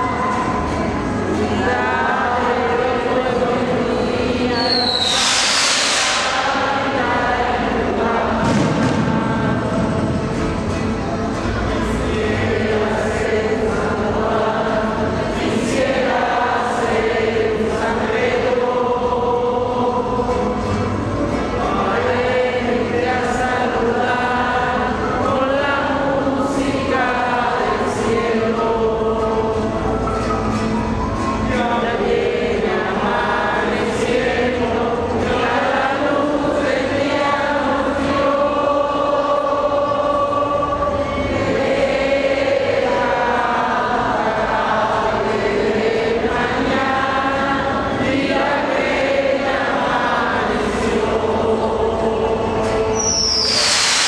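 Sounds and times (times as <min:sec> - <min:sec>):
group singing a hymn: 0:00.0 - 0:54.0.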